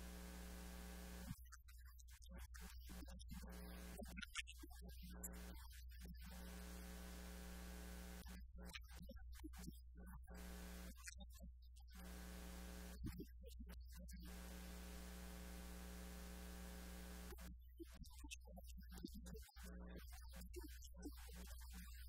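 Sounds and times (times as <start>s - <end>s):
faint electrical mains hum: 0.0s - 1.3s, 14.4s - 17.4s.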